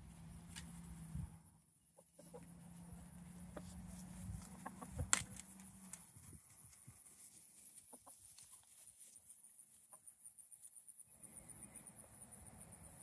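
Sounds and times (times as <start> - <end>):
chickens clucking softly: 1.9 - 5.8, 7.7 - 8.8.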